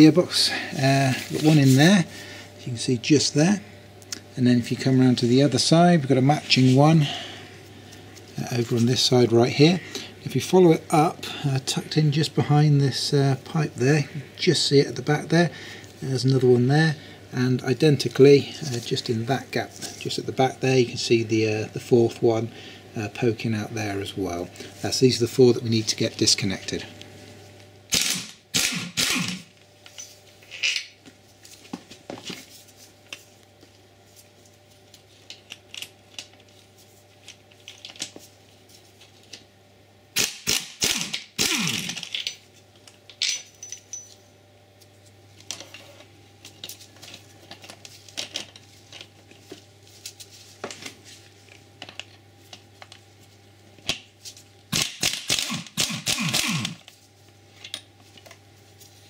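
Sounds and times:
metal tools clicking and clinking: 0:43.1 - 0:44.2.

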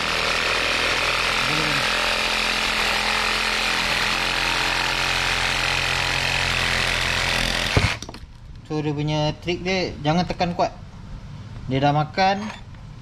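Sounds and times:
reciprocating saw cutting pipe: 0:00.0 - 0:08.0.

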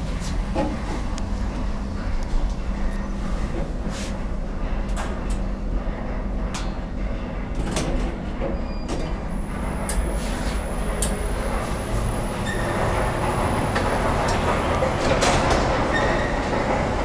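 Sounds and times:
elevator cabin low rumble: 0:00.0 - 0:17.0
doors sliding open: 0:08.9 - 0:17.0
station noise: 0:09.2 - 0:17.0.

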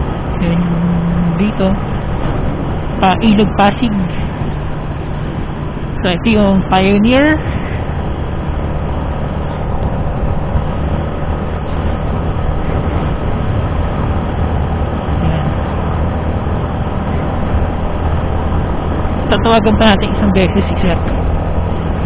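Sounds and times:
motorcycle engine cruising: 0:00.0 - 0:22.0
wind and road noise: 0:00.0 - 0:22.0.

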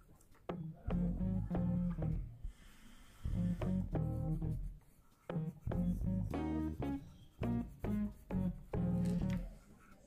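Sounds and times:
plucked string music: 0:00.5 - 0:02.4, 0:03.3 - 0:04.7, 0:05.3 - 0:09.6.

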